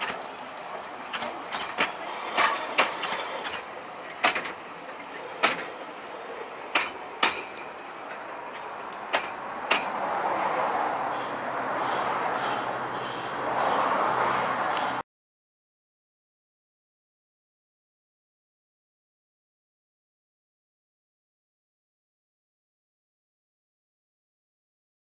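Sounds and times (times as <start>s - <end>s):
train wheels clacking over rail joints: 0.0s - 10.2s, 11.2s - 15.0s.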